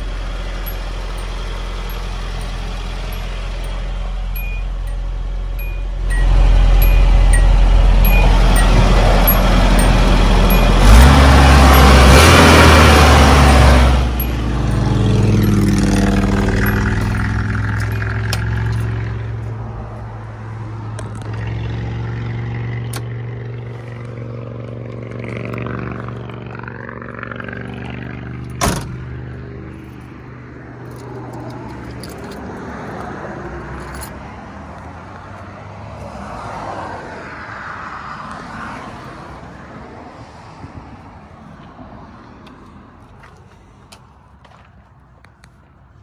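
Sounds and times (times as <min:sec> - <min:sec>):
car engine idling: 0:00.0 - 0:32.4.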